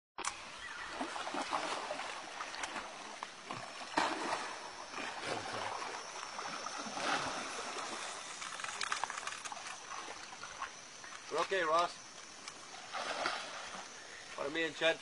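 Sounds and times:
fish thrashing and splashing water: 0:00.7 - 0:11.0, 0:12.6 - 0:14.0.

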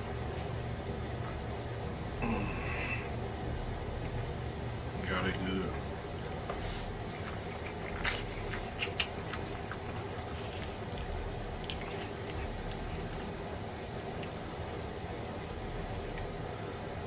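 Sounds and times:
steady low hum: 0:00.0 - 0:17.0
man chewing noodles: 0:06.3 - 0:16.4.

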